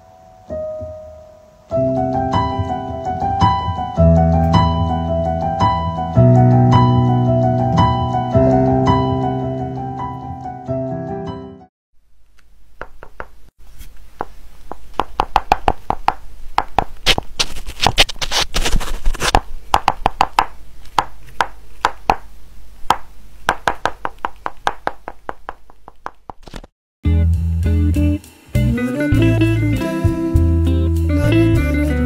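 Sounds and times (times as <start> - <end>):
rapid clicking and tapping: 14.2 - 17.2.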